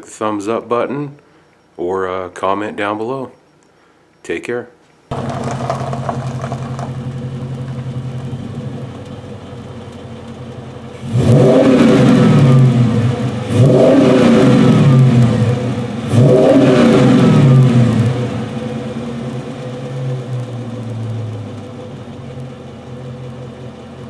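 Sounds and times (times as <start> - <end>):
car engine idling and revving: 5.1 - 24.0.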